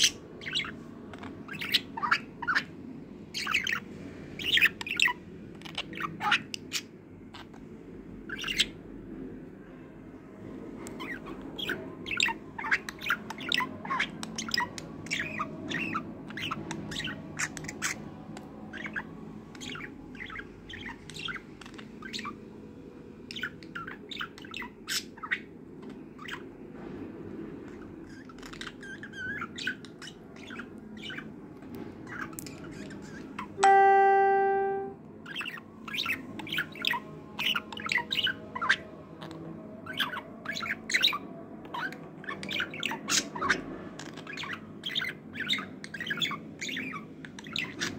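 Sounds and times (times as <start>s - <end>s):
budgerigar chirping and chattering: 0.0s - 2.7s, 3.4s - 3.8s, 4.4s - 7.6s, 8.2s - 8.8s, 10.9s - 18.1s, 18.7s - 22.5s, 23.3s - 26.5s, 28.0s - 31.3s, 32.1s - 38.8s, 39.8s - 47.9s
loud ringing tone: 33.6s - 35.0s.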